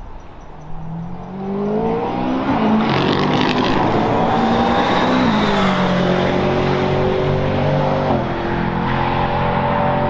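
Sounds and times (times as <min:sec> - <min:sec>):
race car engine passing by: 0:00.7 - 0:10.0.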